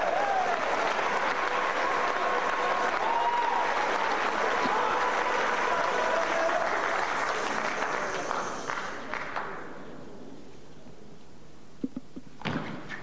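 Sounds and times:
spectators applauding: 0:00.0 - 0:09.8.

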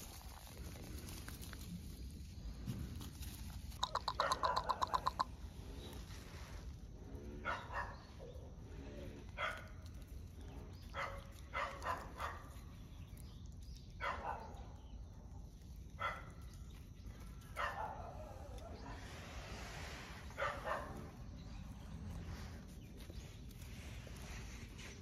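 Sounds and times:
puppy yapping: 0:04.1 - 0:05.2.

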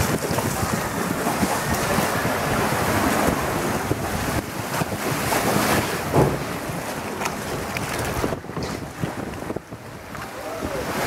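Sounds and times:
rushing water: 0:00.0 - 0:11.0
wind buffeting microphone: 0:00.0 - 0:11.0.

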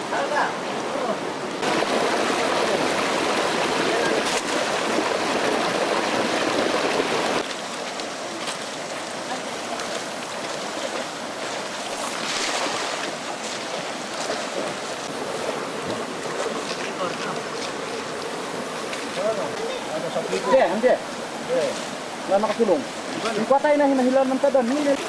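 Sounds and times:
water rushing over rocks: 0:00.0 - 0:25.0.

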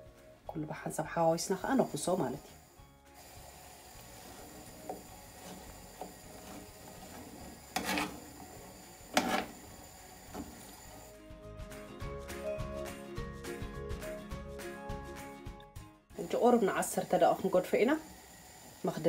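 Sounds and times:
tongs clicking and scraping pan: 0:05.4 - 0:08.4, 0:09.1 - 0:09.5.

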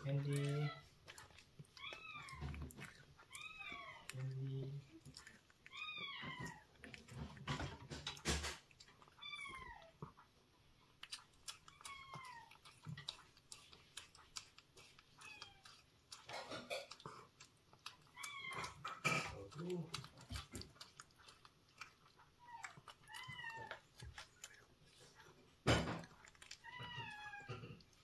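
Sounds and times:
cat meowing: 0:01.8 - 0:04.3, 0:05.2 - 0:07.0, 0:09.1 - 0:10.0, 0:11.7 - 0:12.6, 0:15.2 - 0:15.8, 0:18.1 - 0:19.1, 0:22.4 - 0:23.8, 0:26.6 - 0:27.8
cat eating wet food clicks: 0:11.0 - 0:28.0.

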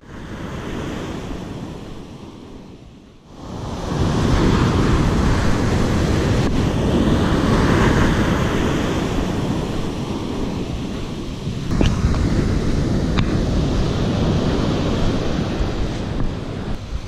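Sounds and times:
ocean surf breaking: 0:00.0 - 0:17.0
wind buffeting microphone: 0:00.0 - 0:17.0.

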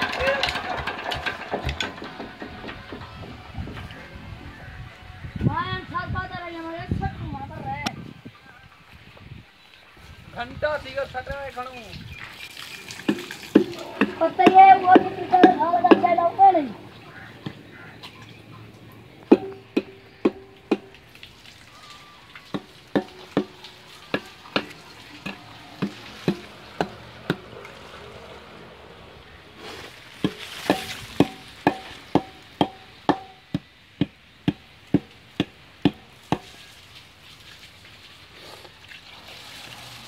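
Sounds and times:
brick knocking on metal pump: 0:00.5 - 0:03.4, 0:19.3 - 0:20.9, 0:30.2 - 0:36.5.

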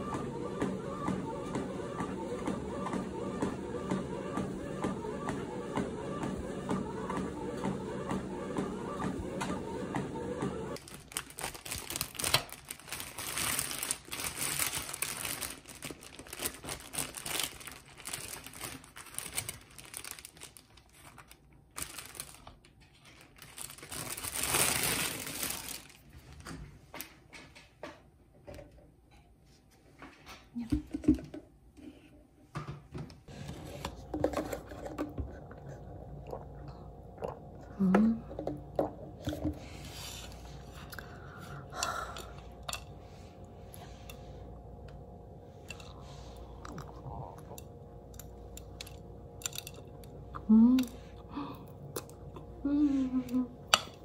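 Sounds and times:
plastic bag crinkling: 0:10.8 - 0:26.4
chewing: 0:45.8 - 0:48.8.

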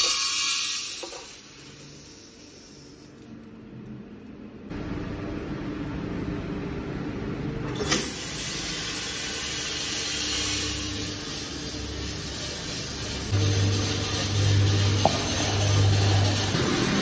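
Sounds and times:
coffee beans pouring into roaster: 0:00.0 - 0:03.3, 0:08.1 - 0:16.8
roaster motor hum: 0:00.0 - 0:17.0.

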